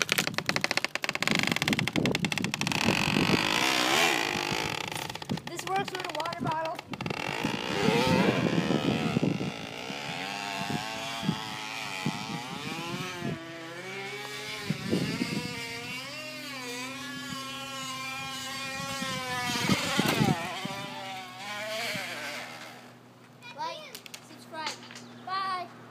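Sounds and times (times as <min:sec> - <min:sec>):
plastic bottle flapping on spokes: 0:00.0 - 0:07.8.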